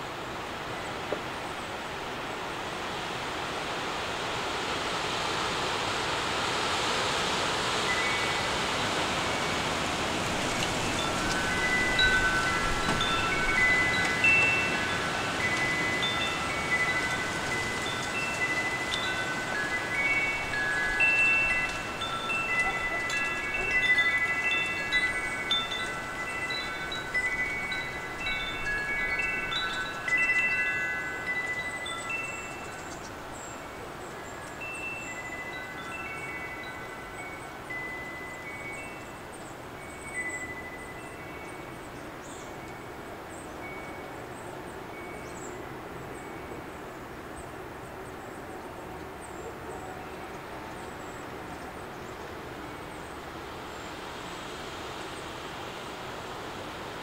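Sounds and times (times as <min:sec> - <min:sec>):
wind gusting: 0:06.5 - 0:33.4
faint chime tone: 0:10.8 - 0:46.8.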